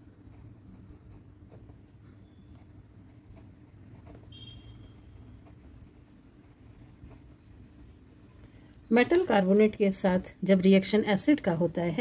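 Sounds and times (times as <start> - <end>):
pen scratching on paper: 0.0 - 8.2
steady low hum: 0.0 - 12.0.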